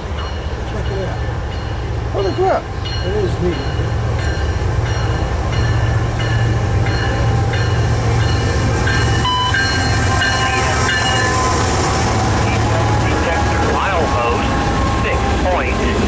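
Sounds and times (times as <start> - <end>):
locomotive engine drone: 0.0 - 16.0
high ringing tones: 0.1 - 11.9.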